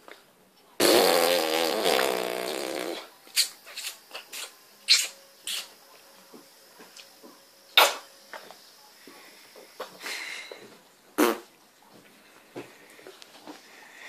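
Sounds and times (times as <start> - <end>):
raspberry blown through lips: 0.8 - 3.1.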